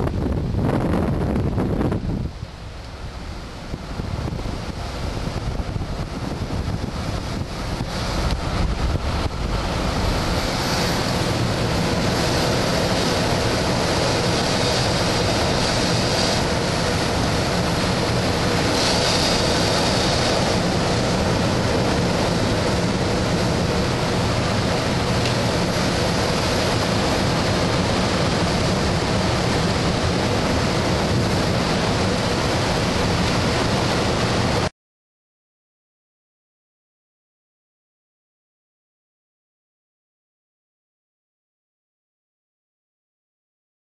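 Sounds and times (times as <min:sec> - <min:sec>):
airflow rushing past glider canopy: 0:00.0 - 0:34.7.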